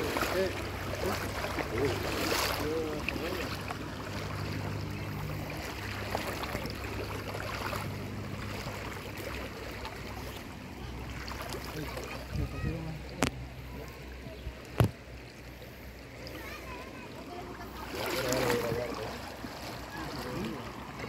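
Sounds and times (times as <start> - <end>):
river water sloshing around legs: 0.0 - 21.0.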